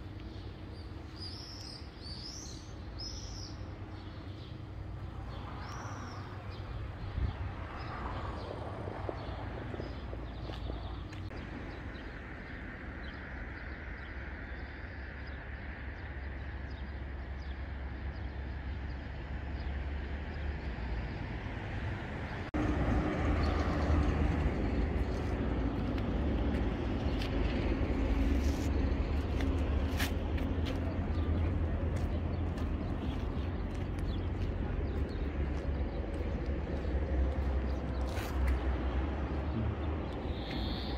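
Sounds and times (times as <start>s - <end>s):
wind rumble on microphone: 5.2s - 14.6s.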